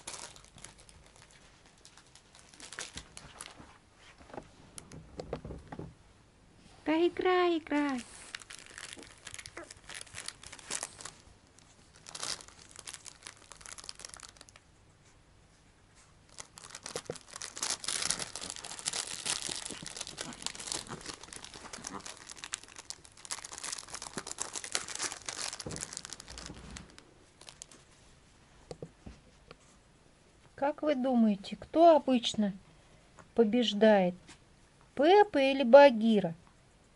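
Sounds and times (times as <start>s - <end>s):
dog chewing plastic package: 0.0s - 3.6s, 8.0s - 14.6s, 16.3s - 27.8s
plastic crinkling: 0.0s - 3.8s, 7.7s - 14.7s, 16.3s - 28.0s.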